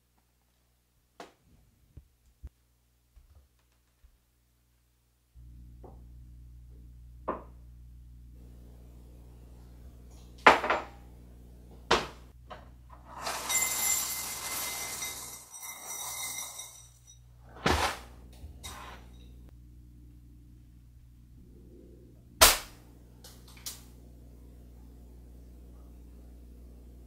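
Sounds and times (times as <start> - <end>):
low hum: 5.4 - 13.1, 16.7 - 27.0
kitchen knocks and thuds: 7.2 - 7.6, 10.4 - 10.9, 11.9 - 12.8, 17.5 - 18.1
cereal pouring into ceramic bowl: 13.2 - 16.8.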